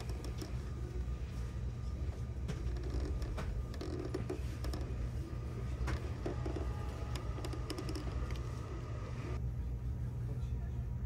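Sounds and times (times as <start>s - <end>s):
seat mechanism clicks and creaks: 2.5s - 5.0s, 5.8s - 8.5s
train car low hum: 3.5s - 11.0s.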